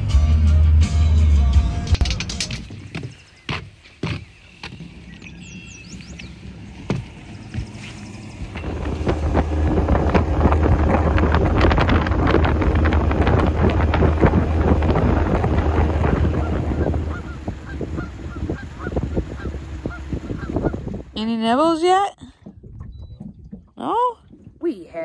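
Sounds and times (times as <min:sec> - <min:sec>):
waterfowl honking: 0:16.0 - 0:21.0.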